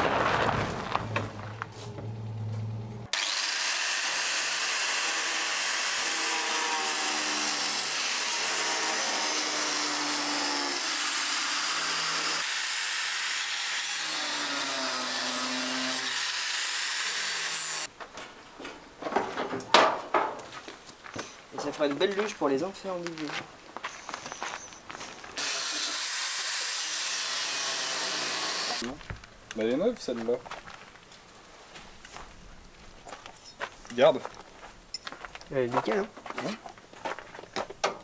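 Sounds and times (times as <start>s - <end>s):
power tool running: 3.0s - 17.9s, 25.4s - 28.8s.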